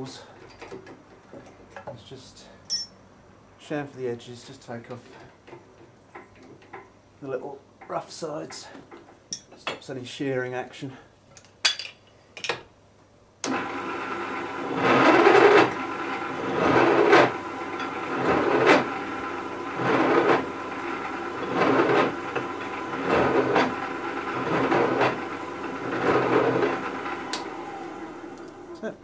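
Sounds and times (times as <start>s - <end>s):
drill motor running: 13.5s - 28.8s.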